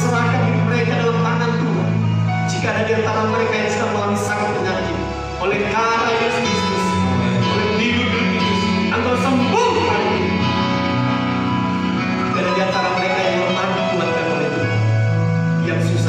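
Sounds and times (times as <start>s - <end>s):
keyboard sustained chords: 0.0s - 16.0s.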